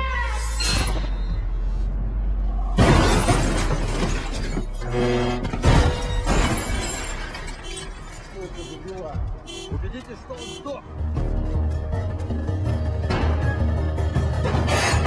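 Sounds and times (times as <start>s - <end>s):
crashing impacts: 2.7s - 8.4s
glass shattering: 2.8s - 8.5s.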